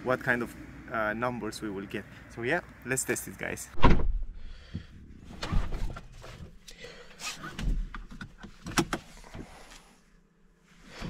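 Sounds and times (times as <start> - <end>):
knocks and rustles in car cabin: 7.4 - 9.6.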